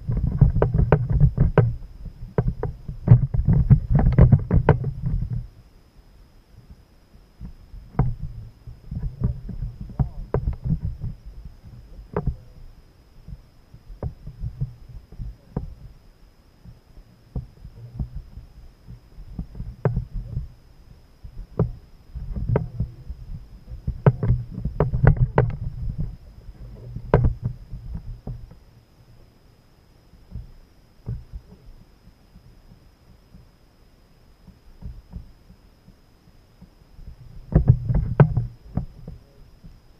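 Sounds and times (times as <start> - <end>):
knocks and thumps on plastic kayak: 0.1 - 5.4, 7.4 - 12.5, 14.0 - 15.8, 19.3 - 20.5, 21.3 - 28.6, 30.3 - 31.6, 37.3 - 39.2.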